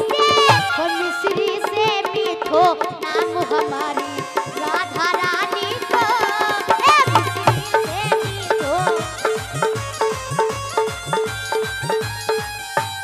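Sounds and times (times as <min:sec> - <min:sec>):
girl singing: 0:00.0 - 0:09.4
hand drum rhythm: 0:00.0 - 0:13.0.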